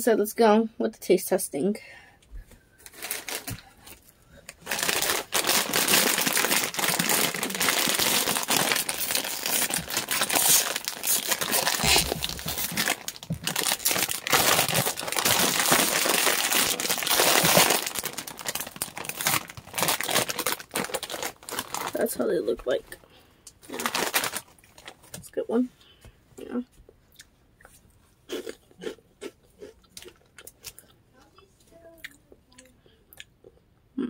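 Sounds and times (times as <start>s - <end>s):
snack bag crinkling: 2.8s - 22.7s, 23.6s - 25.2s.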